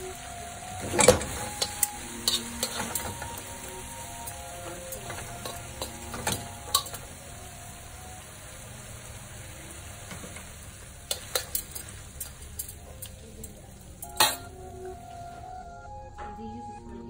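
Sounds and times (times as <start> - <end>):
food sizzling in a wok: 0.0 - 15.3
tongs clicking against wok: 1.5 - 3.3, 5.0 - 7.0, 11.0 - 14.4.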